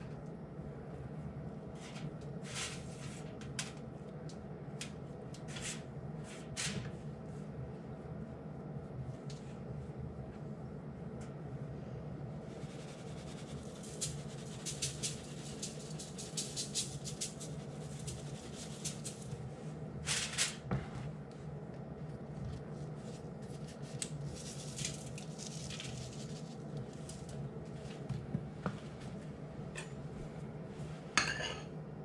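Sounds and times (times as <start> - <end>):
steady low hum: 0.0 - 32.0
spice shakers rattling: 13.8 - 17.5.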